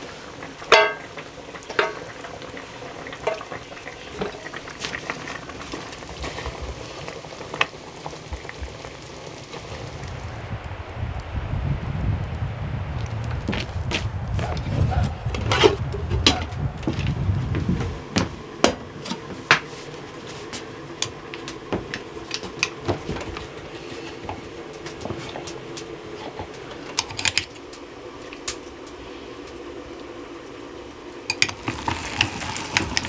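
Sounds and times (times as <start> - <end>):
kitchen utensils and dishes clinking: 0.7 - 1.1, 1.7 - 2.1
wind buffeting microphone: 9.6 - 18.3.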